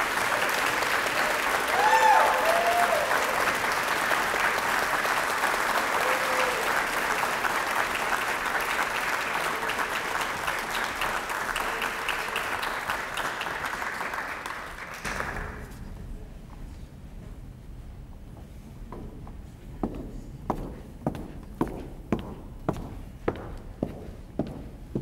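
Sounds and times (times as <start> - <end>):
audience applauding: 0.0 - 15.7.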